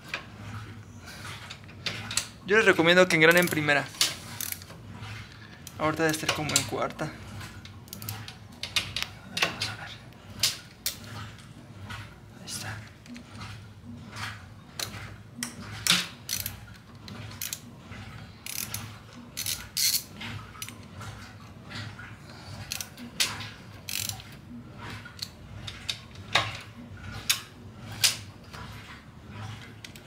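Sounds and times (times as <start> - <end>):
ratchet wrench clicking: 16.3 - 16.5, 18.4 - 18.8, 23.9 - 24.2.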